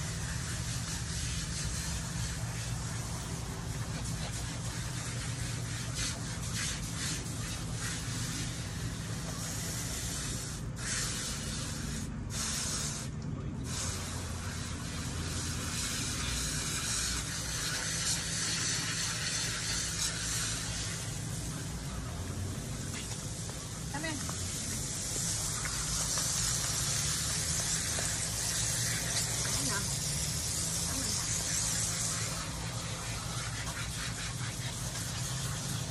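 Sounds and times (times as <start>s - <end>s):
hose spraying water: 0.0s - 35.9s
water splashing on concrete: 24.0s - 35.9s.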